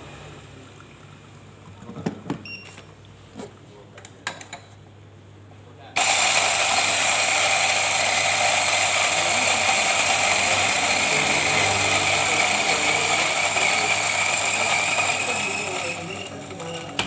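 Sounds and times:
coffee grinder whining: 6.0 - 17.0.

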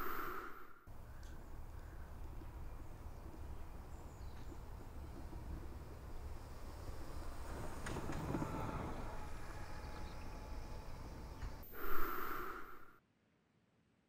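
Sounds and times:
faint thin tones: 0.0 - 0.8, 11.6 - 13.0
low background rumble: 0.0 - 13.0.

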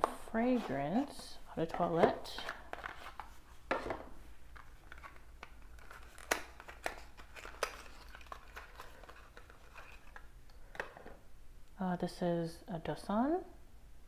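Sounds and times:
cardboard and paper rustling: 4.6 - 10.2.

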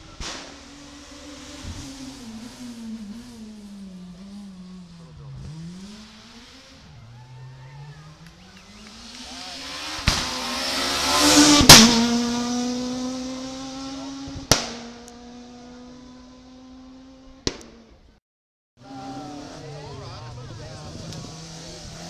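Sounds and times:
rally car engine at high revs: 0.0 - 17.9, 18.8 - 22.0
sharp cracks: 10.0 - 10.5, 14.5 - 15.2, 17.5 - 17.9.

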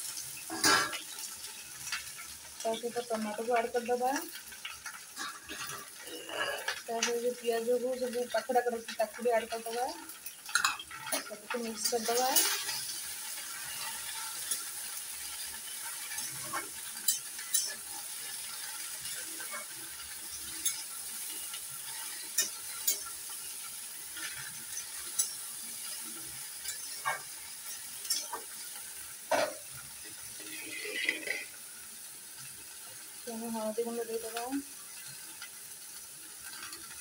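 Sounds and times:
vegetables sizzling in oil: 0.0 - 37.0
metal spatula scraping a pan: 0.4 - 3.0, 4.6 - 7.3, 8.0 - 31.6.

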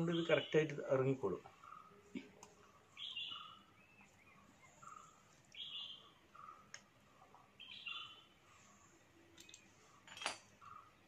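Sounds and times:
faint bird calls: 1.5 - 9.7
faint click: 6.7 - 6.9.

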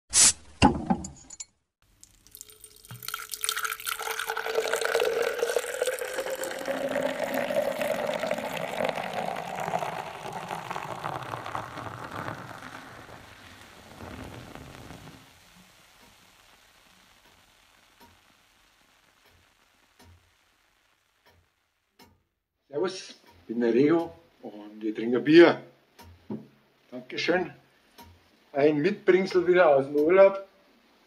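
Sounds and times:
beer pouring into a glass: 2.0 - 16.1.

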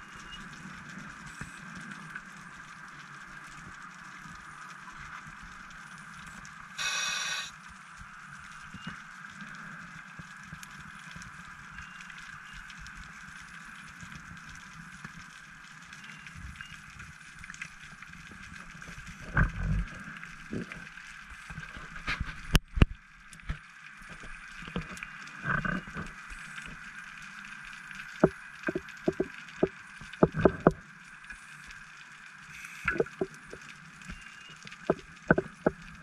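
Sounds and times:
exhaled bubbles gurgling underwater: 24.0 - 31.7, 32.4 - 36.0
sharp clicks and pops: 28.0 - 30.8, 32.7 - 36.0.

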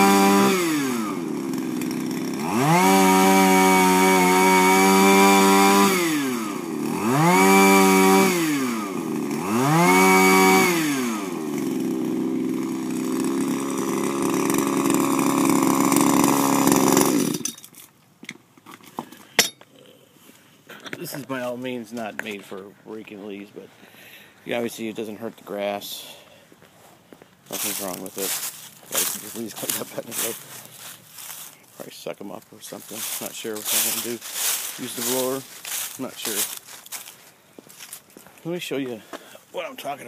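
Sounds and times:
small two-stroke engine revving: 0.0 - 17.5.

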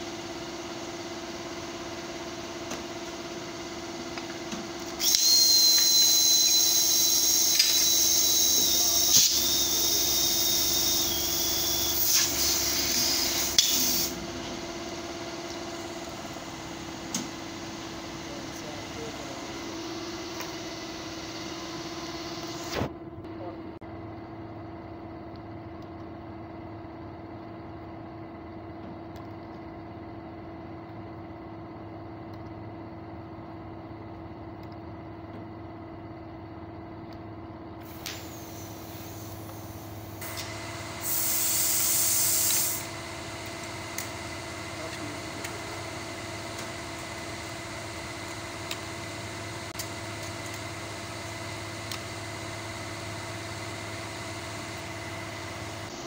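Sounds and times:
machine hum: 0.0 - 56.0
compressed air hiss: 6.7 - 14.2, 37.9 - 42.9.

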